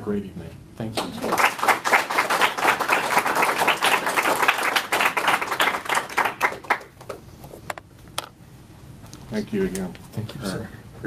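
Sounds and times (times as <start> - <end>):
small audience applauding: 0.9 - 7.2.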